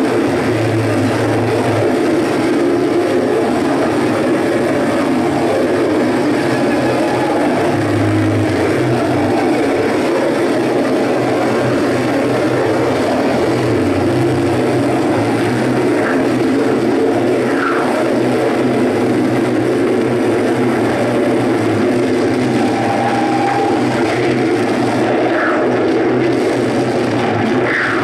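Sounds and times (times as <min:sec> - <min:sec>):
electronic noise music drone: 0:00.0 - 0:28.0.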